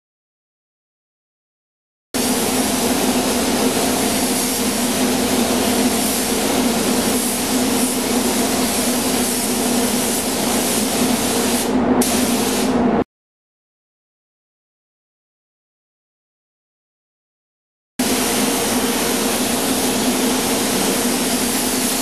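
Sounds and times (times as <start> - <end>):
spray gun hissing: 2.2 - 12.8, 18.0 - 22.0.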